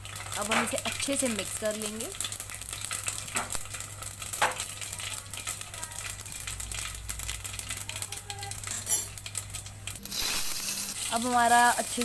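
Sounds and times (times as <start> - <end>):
spices sizzling in hot oil: 0.0 - 12.0
spoon scraping pot: 9.9 - 11.6.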